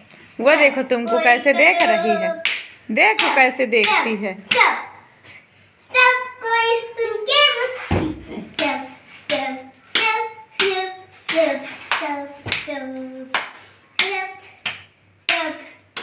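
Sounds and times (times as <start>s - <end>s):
boy chanting syllables: 0.6s - 2.5s
boy clapping hands: 1.8s - 4.6s, 8.5s - 16.0s.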